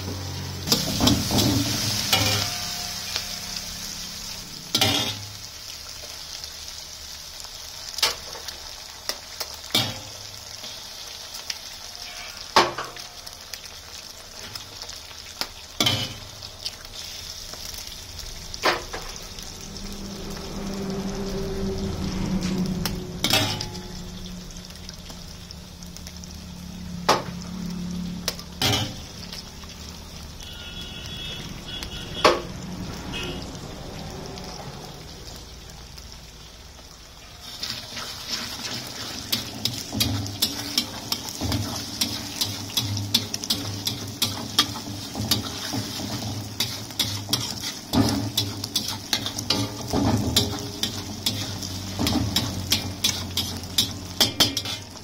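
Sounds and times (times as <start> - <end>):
eggs sizzling in a wok: 0.0 - 55.0
spatula scraping against wok: 37.4 - 55.0.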